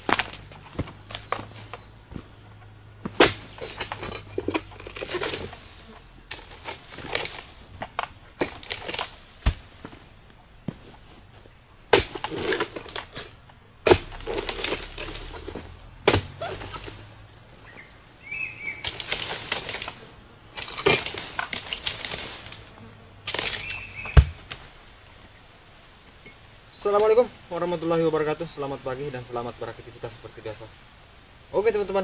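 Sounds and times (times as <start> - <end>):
palm fronds crackling and rustling: 0.0 - 32.0
sharp knocks: 13.8 - 17.0, 24.0 - 24.6.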